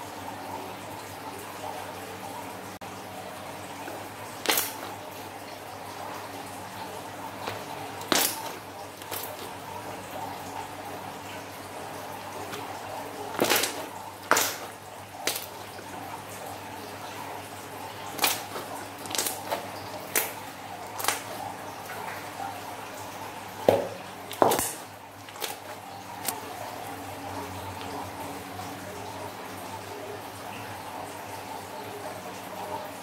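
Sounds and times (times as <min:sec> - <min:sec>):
wet slime squishes: 0:03.9 - 0:05.2, 0:07.3 - 0:10.5, 0:12.0 - 0:16.1, 0:17.4 - 0:22.4, 0:23.6 - 0:26.5
air pockets popping in slime: 0:04.4 - 0:05.0, 0:07.4 - 0:09.5, 0:13.3 - 0:15.6, 0:18.2 - 0:20.4.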